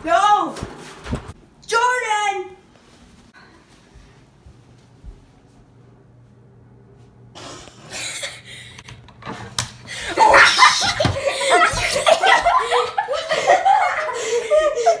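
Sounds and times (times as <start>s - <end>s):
shuffling noises: 2.6s - 7.2s
person laughing loudly: 10.1s - 15.0s.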